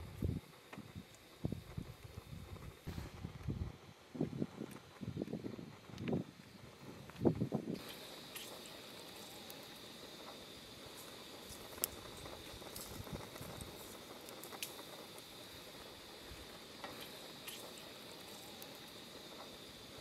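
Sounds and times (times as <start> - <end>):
sausages sizzling in a frying pan: 6.4 - 20.0
spitting oil pops: 7.2 - 20.0.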